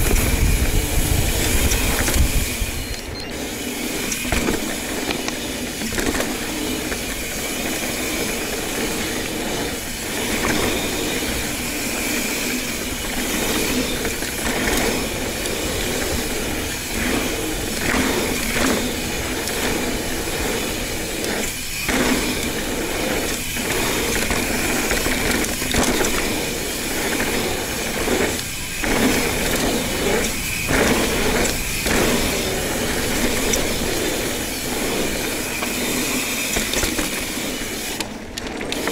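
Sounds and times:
bike rattling: 0.0s - 38.9s
bike tyre and drivetrain noise: 0.0s - 38.9s.

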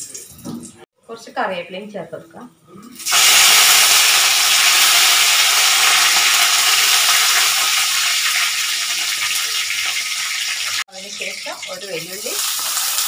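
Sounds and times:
leaves sizzling in hot oil: 3.0s - 13.0s.

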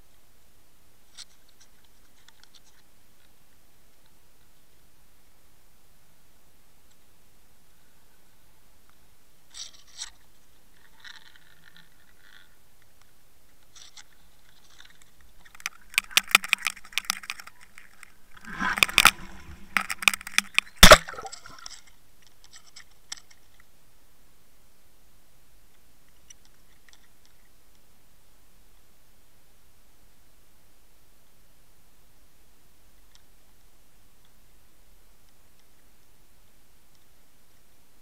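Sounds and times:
faint clicks: 10.8s - 23.7s
camera scraping and crunching: 14.6s - 21.9s
sharp knock: 20.8s - 21.6s.

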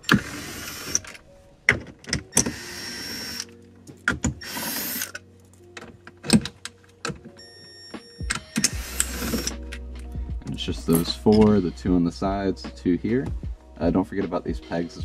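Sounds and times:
cordless driver whirring: 2.3s - 3.5s, 4.4s - 5.2s, 8.4s - 9.8s.

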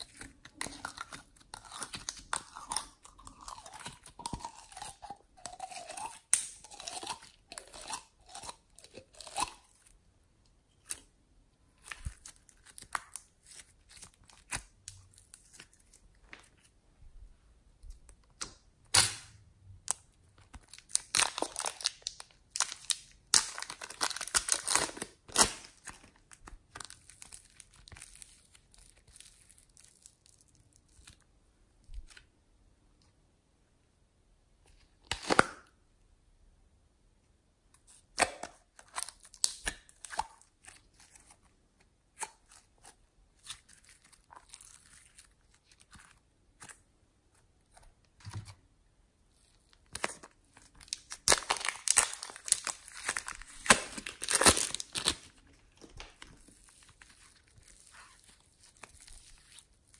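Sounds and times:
slime squelching and crackling: 0.0s - 10.0s, 11.7s - 16.7s, 19.9s - 31.4s, 37.9s - 48.1s, 49.2s - 59.9s.

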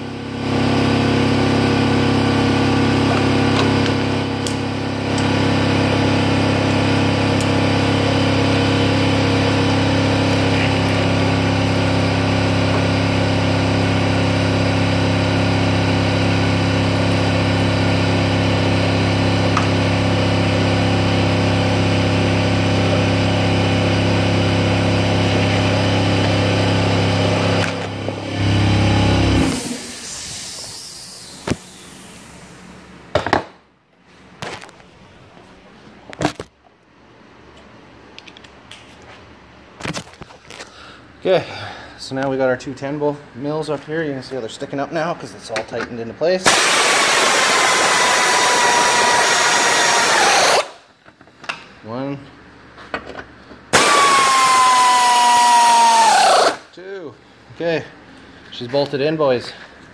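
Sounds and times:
air compressor motor humming: 0.0s - 33.0s, 46.4s - 50.9s, 53.7s - 56.8s.

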